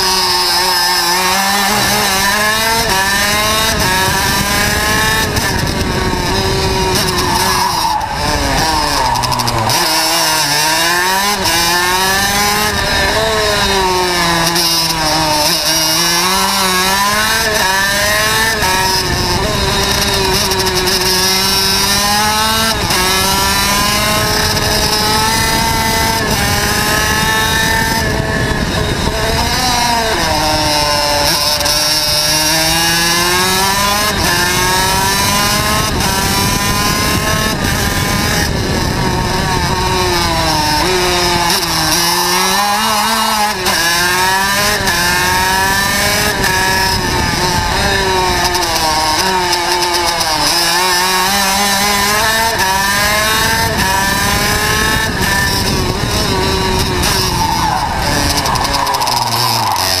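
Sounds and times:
kart engine revving: 0:00.0 - 1:00.0
wind rushing: 0:00.0 - 1:00.0.

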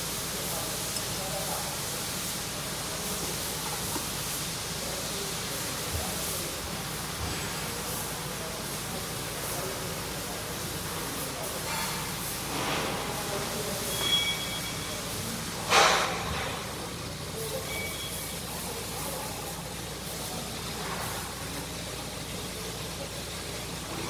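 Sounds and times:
workshop hum: 0:00.0 - 0:24.0
faint two-tone beep: 0:13.8 - 0:15.1, 0:17.5 - 0:18.4.

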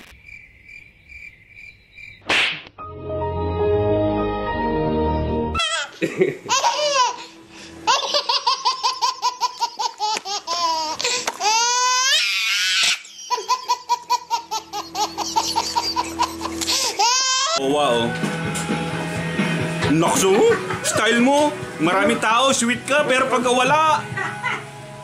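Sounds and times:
music: 0:02.8 - 0:09.7, 0:13.9 - 0:25.0
baby laughing: 0:05.6 - 0:17.6.

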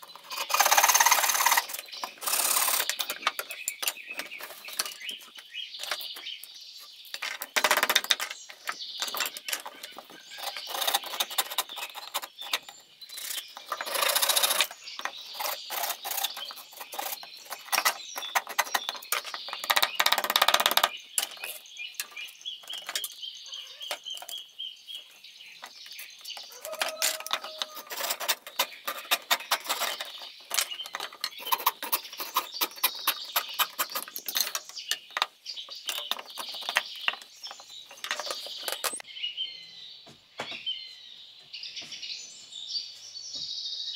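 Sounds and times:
sharp clicks and knocks on bamboo: 0:00.0 - 0:23.2.

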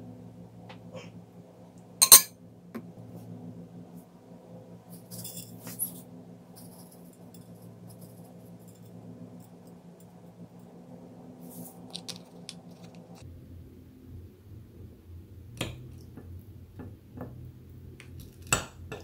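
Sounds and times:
seeds patting onto a plate: 0:11.5 - 0:13.2.

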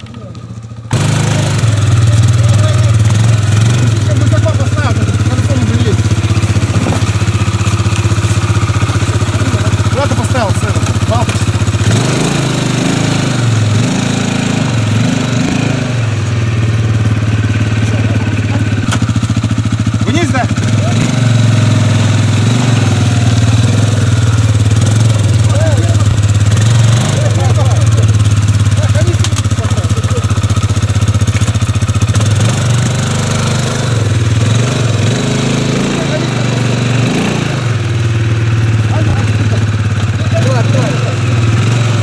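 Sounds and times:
quad bike engine revving and idling: 0:00.0 - 0:42.0
wheels churning mud: 0:00.0 - 0:42.0.

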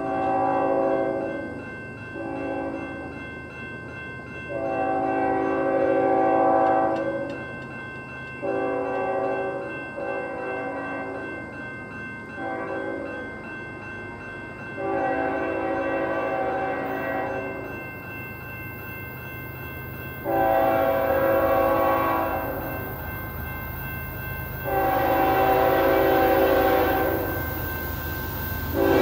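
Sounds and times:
locomotive air horn blasts: 0:00.0 - 0:01.2, 0:04.6 - 0:07.3, 0:08.4 - 0:11.1, 0:14.8 - 0:17.4, 0:20.2 - 0:22.7, 0:24.6 - 0:27.4, 0:28.7 - 0:29.0
crossing signal bell ringing: 0:00.0 - 0:29.0.

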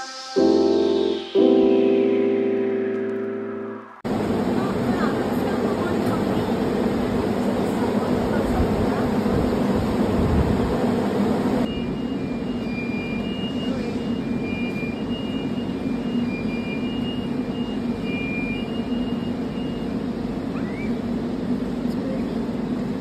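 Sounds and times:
two-pitch high beeping: 0:00.0 - 0:04.0, 0:11.7 - 0:20.0
low mechanical hum: 0:04.1 - 0:23.0.

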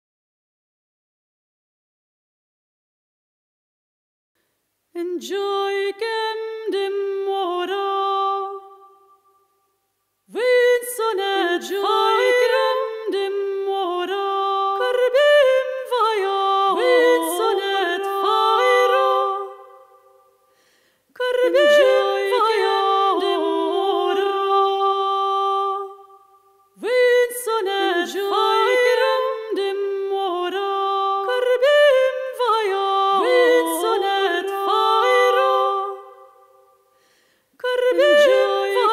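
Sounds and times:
two high voices singing: 0:10.3 - 0:20.4, 0:21.2 - 0:36.9, 0:37.6 - 0:38.9.

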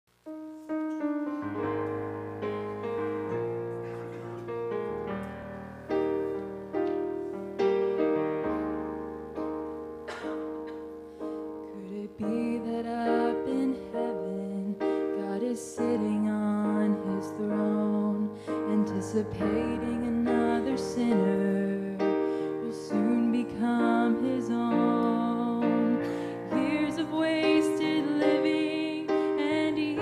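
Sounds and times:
piano chords over bass line: 0:00.1 - 0:30.0
woman singing: 0:11.6 - 0:30.0.

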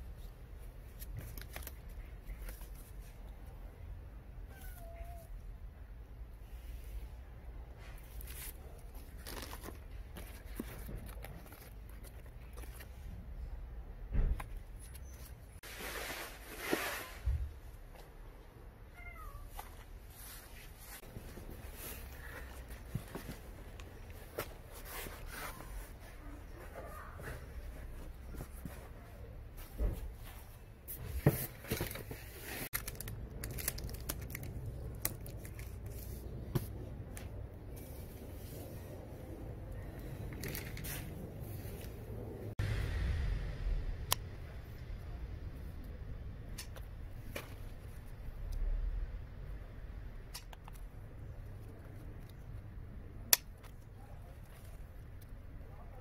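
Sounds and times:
foam netting rustling: 0:15.6 - 0:17.4.

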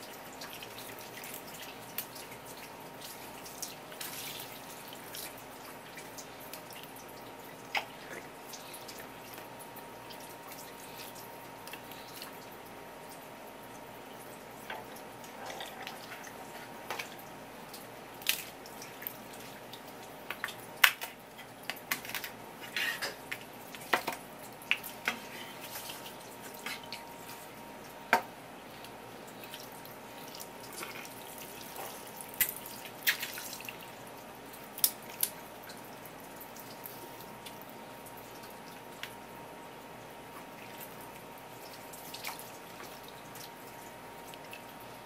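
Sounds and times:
wet slaps and drips: 0:16.9 - 0:22.3, 0:23.3 - 0:27.0, 0:28.2 - 0:33.8, 0:34.5 - 0:35.8, 0:40.6 - 0:43.6.

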